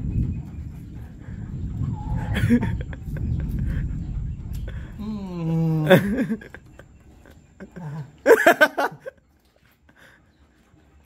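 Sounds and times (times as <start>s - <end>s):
man's loud vocal outburst: 5.0s - 6.0s
man's falling vocal sound: 5.0s - 6.2s.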